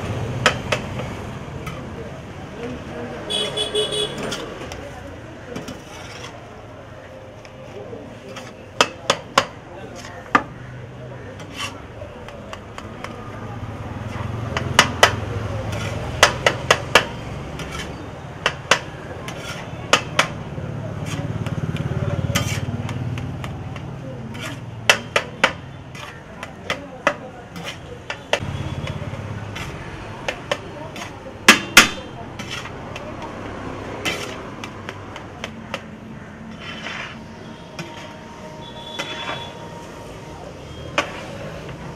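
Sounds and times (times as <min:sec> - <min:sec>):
metal spatula scraping griddle: 0:05.5 - 0:06.6, 0:11.2 - 0:11.9, 0:15.6 - 0:16.4, 0:17.5 - 0:18.1, 0:18.7 - 0:20.2, 0:21.0 - 0:21.4, 0:22.2 - 0:23.0, 0:24.2 - 0:24.8, 0:25.9 - 0:26.3, 0:27.5 - 0:27.9, 0:28.7 - 0:30.3, 0:32.4 - 0:32.8, 0:33.9 - 0:34.7, 0:36.4 - 0:39.5.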